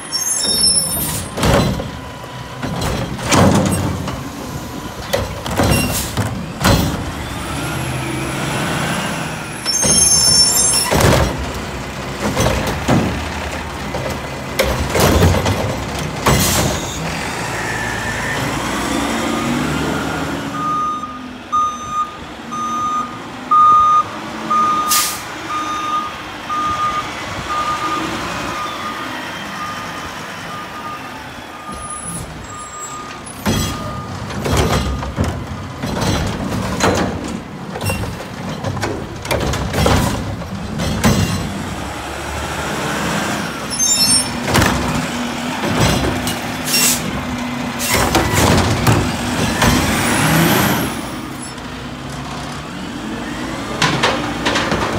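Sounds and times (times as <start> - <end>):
banging and clatter of arm and cart: 1.1 - 4.3, 5.0 - 7.1, 10.8 - 17.0, 33.4 - 41.7, 44.3 - 50.4, 53.7 - 54.9
reversing alarm beeping: 20.5 - 35.1.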